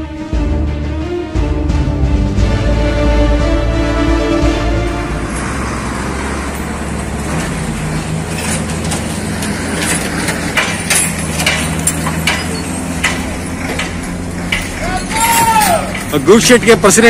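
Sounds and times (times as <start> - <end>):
lorry engine humming: 0.0 - 17.0
sharp metal clanks and knocks: 6.5 - 16.8.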